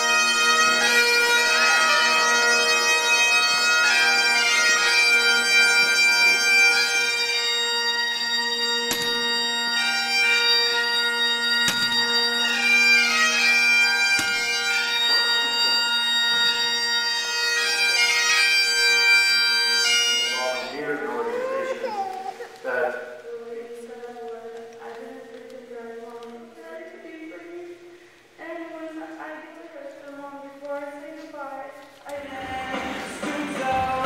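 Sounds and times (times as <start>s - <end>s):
bagpipes playing slow melody: 0.0s - 22.4s.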